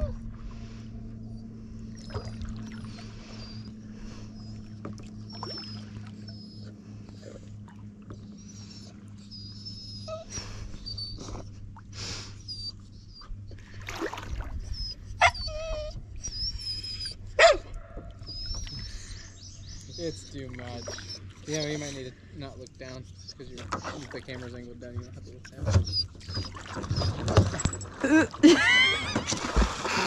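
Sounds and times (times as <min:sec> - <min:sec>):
dog whining and whimpering: 0:00.0 - 0:00.3, 0:01.3 - 0:04.6, 0:05.2 - 0:11.7, 0:12.3 - 0:13.8, 0:14.5 - 0:22.1, 0:25.0 - 0:29.4.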